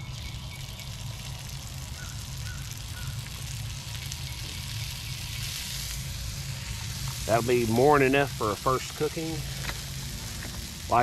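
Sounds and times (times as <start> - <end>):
hash browns sizzling in oil: 0.0 - 11.0.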